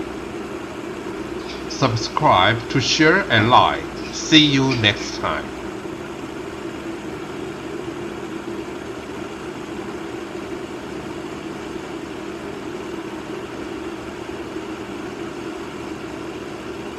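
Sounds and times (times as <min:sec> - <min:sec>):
water boiling in a pot: 0:00.0 - 0:01.4, 0:05.6 - 0:16.9
cooling fan hum: 0:00.0 - 0:16.9.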